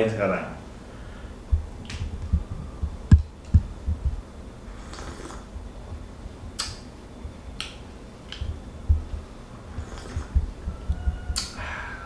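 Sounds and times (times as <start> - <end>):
coffee slurps: 4.9 - 5.4, 9.8 - 10.4.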